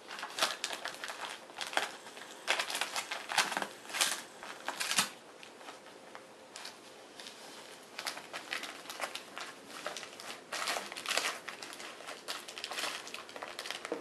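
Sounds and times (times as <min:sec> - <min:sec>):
wrapping paper crinkling and tearing: 0:00.0 - 0:14.0.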